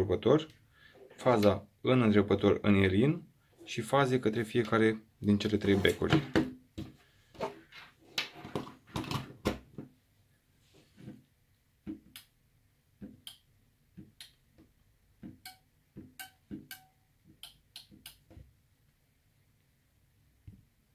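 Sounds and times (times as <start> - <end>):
knocks and rustling of wiring: 5.8 - 10.0.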